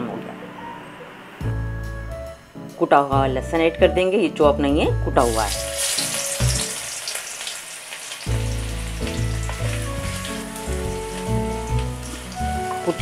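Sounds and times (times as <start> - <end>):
background music: 0.0 - 13.0
garlic sizzling in oil: 5.2 - 13.0.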